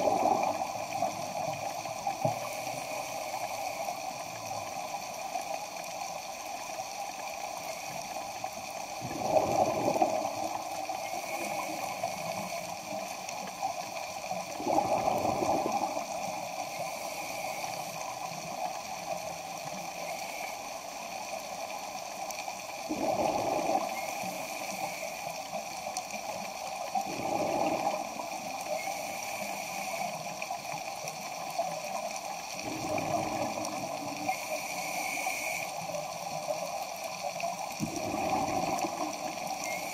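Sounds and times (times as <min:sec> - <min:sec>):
exhaled bubbles underwater: 0:00.0 - 0:01.7, 0:08.9 - 0:12.9, 0:14.2 - 0:16.6, 0:22.8 - 0:24.6, 0:27.0 - 0:28.9, 0:32.5 - 0:34.4, 0:37.2 - 0:39.9
underwater hiss: 0:00.0 - 0:39.9.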